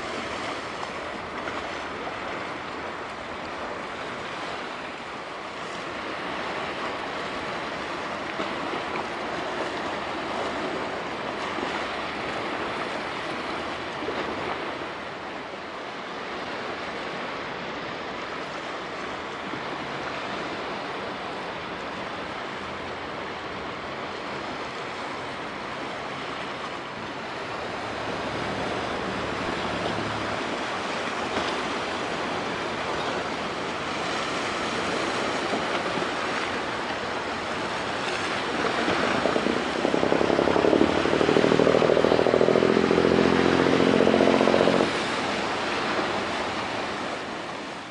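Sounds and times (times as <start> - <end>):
sea water washing on shore: 0.0 - 47.9
wind: 0.0 - 47.9
low rumble: 39.0 - 45.0.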